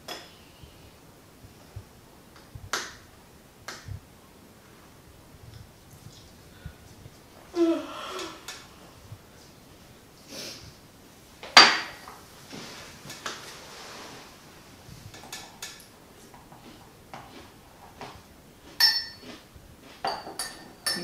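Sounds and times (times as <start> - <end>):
dishes and cutlery clinking: 18.8 - 19.4, 20.0 - 21.0.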